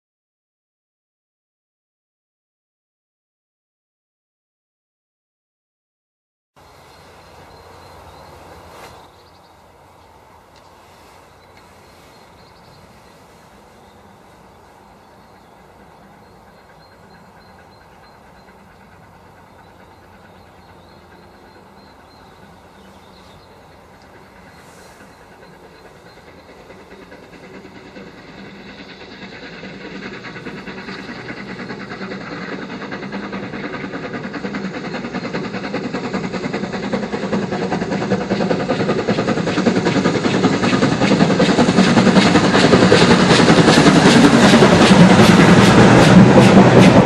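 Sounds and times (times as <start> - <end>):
steam locomotive approaching: 6.6 - 47.0.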